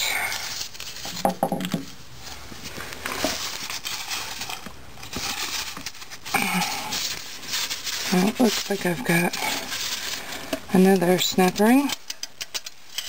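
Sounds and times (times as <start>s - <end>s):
metal gears clicking and scraping: 11.4s - 13.0s.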